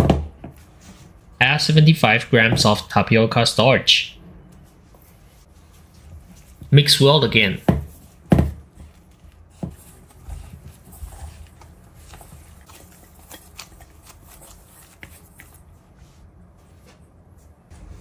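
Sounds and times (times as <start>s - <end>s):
hands kneading dough: 4.5s - 18.0s.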